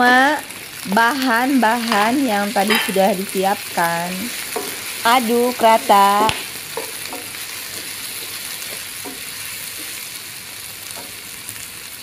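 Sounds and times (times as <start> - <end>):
vegetables sizzling in oil: 0.0 - 12.0
wooden spatula stirring: 4.3 - 10.3.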